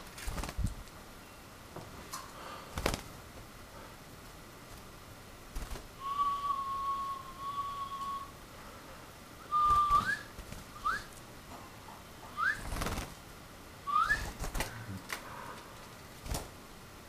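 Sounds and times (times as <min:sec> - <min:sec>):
bird wings fluttering: 0:00.0 - 0:01.0, 0:02.7 - 0:03.6, 0:04.2 - 0:06.5, 0:09.5 - 0:11.3, 0:12.4 - 0:13.3, 0:13.9 - 0:16.6
person whistling: 0:06.0 - 0:08.3, 0:09.5 - 0:11.1, 0:13.9 - 0:14.3.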